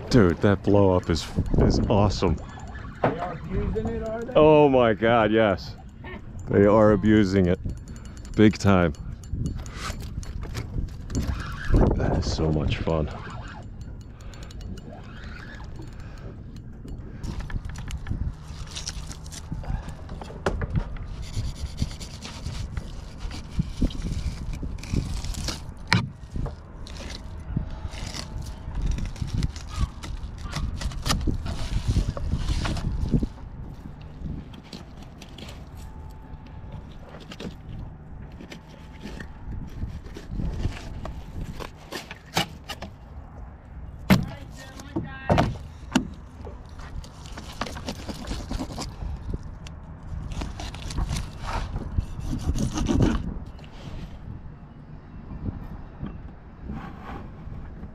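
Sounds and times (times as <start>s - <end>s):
knife scraping fish: 21.1s - 26.0s, 26.8s - 33.0s, 47.2s - 49.0s, 50.2s - 53.3s.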